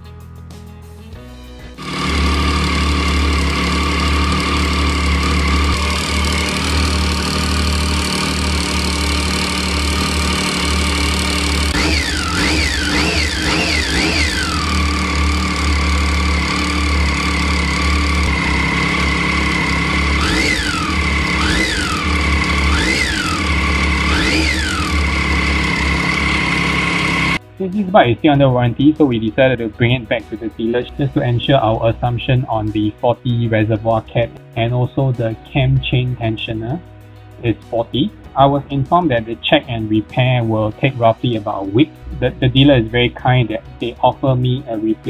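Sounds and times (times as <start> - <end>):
engine ticking: 1.8 - 27.4
motorcycle engine idling: 1.8 - 27.4.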